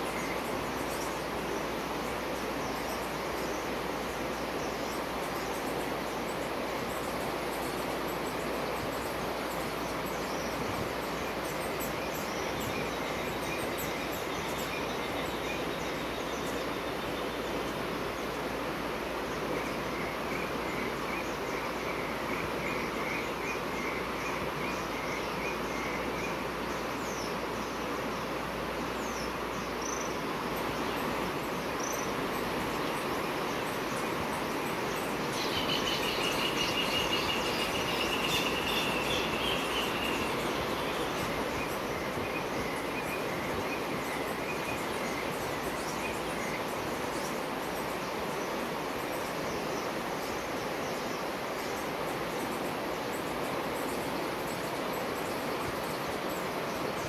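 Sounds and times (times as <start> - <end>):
flowing water rushing: 0.0 - 57.0
small birds chirping: 22.4 - 57.0
bird trilling song: 31.8 - 46.6.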